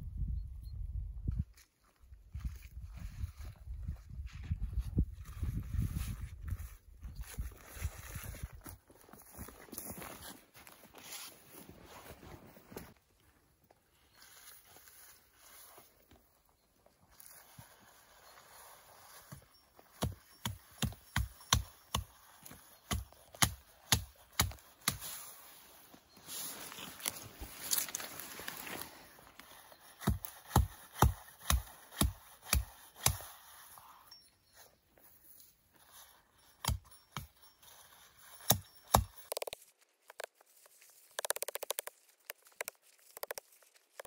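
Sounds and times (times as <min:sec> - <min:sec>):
hatchet chopping branches: 0:19.9 - 0:25.3, 0:29.9 - 0:33.5, 0:36.5 - 0:37.4, 0:38.4 - 0:39.6.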